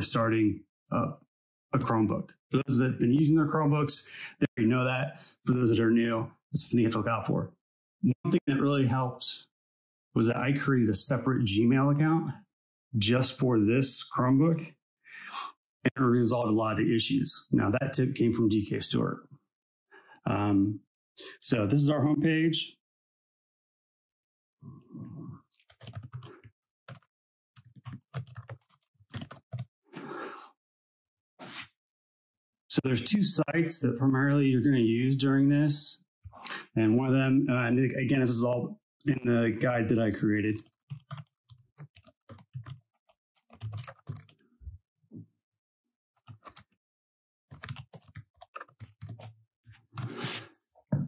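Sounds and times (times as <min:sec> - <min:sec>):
laptop keyboard typing: 0:25.5 - 0:29.6, 0:40.5 - 0:44.4, 0:46.2 - 0:46.8, 0:47.5 - 0:49.3.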